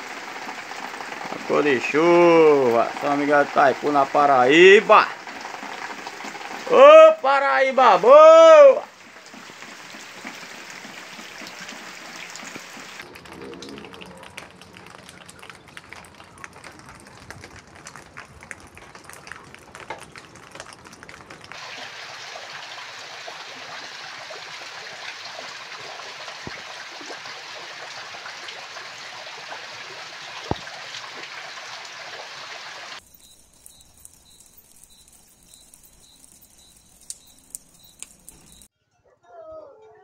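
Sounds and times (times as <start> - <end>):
rain drops pattering: 0.0 - 38.7
rain streaming off a roof: 0.0 - 38.7
faint high chirp: 33.0 - 39.2.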